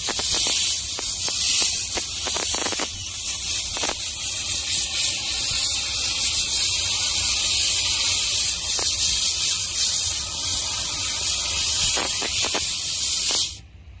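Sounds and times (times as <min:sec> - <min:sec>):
steam cleaner hissing: 0:00.0 - 0:13.6.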